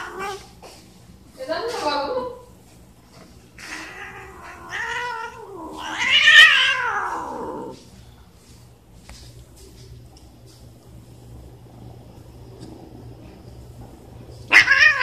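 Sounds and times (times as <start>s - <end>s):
cat meowing: 3.6s - 7.8s, 14.5s - 15.0s.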